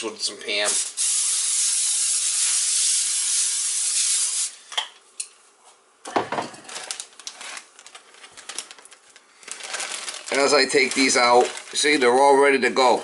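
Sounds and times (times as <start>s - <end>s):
aerosol spray hissing: 0.6s - 4.6s.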